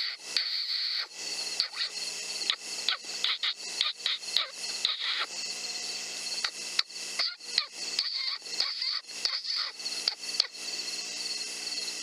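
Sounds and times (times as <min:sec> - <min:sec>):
electronic squealing distress call: 0:00.0 - 0:05.3, 0:07.2 - 0:10.6.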